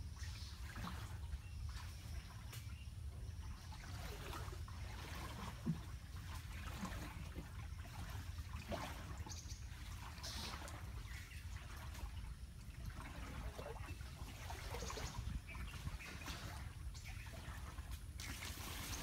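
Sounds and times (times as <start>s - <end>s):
small paddle splashes: 0.0s - 19.0s
water lapping around boat: 0.0s - 19.0s.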